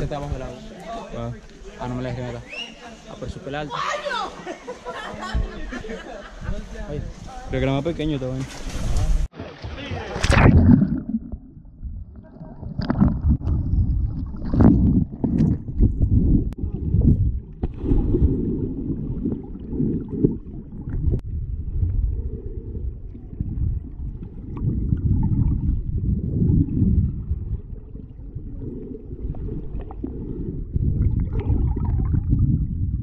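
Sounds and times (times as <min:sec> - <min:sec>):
sharp knocks underwater: 0:09.3 - 0:21.9
muffled underwater churning rumble: 0:10.0 - 0:33.0
bubbling underwater: 0:10.2 - 0:33.0.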